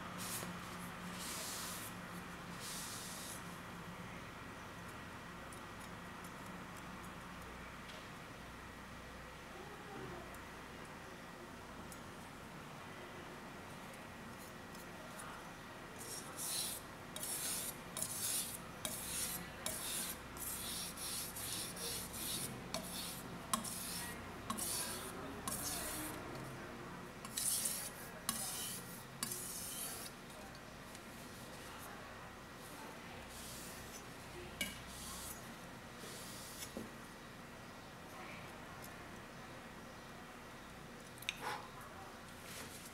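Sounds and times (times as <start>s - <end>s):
knife scraping on whetstone: 16.1s - 26.2s, 27.2s - 30.2s.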